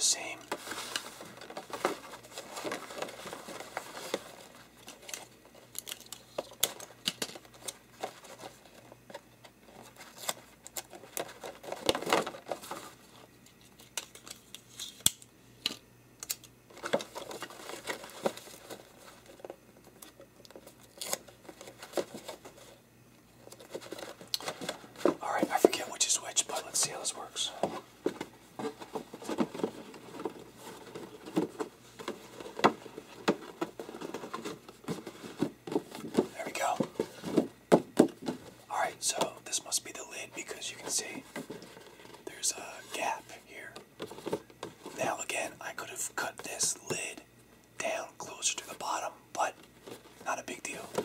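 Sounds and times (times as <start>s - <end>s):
posterboard rustling and creasing: 26.6s - 38.7s.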